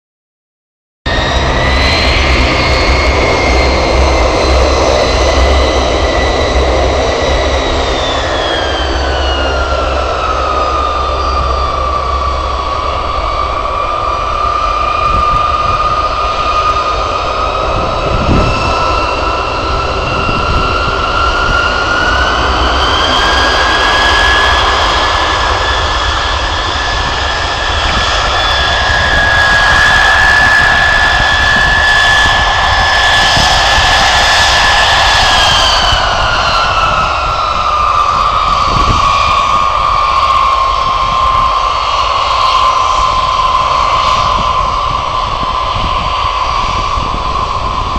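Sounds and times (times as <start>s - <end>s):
jet engines rumbling and whining: 1.1s - 47.9s.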